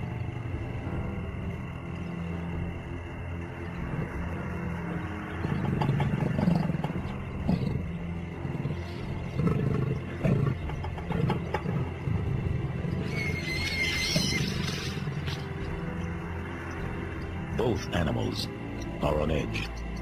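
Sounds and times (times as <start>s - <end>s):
animals growling: 3.2s - 20.0s
high wavering squeal: 12.9s - 15.6s.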